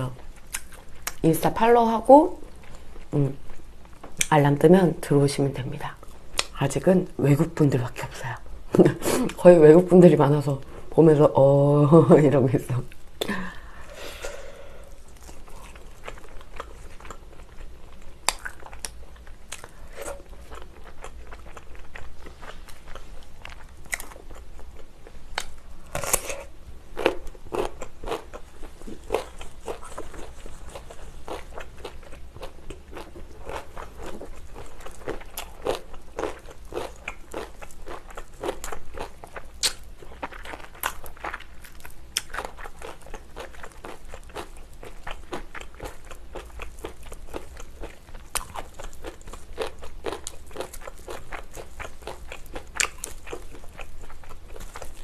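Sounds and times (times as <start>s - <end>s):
crunching and chewing: 0.1s - 1.2s, 14.9s - 55.0s
wet mouth sounds: 39.6s - 39.8s.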